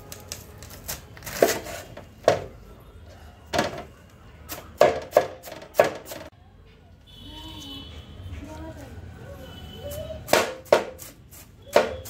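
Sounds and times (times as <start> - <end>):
knife chopping cabbage on wooden board: 0.6 - 2.5, 4.5 - 6.3, 10.2 - 12.0.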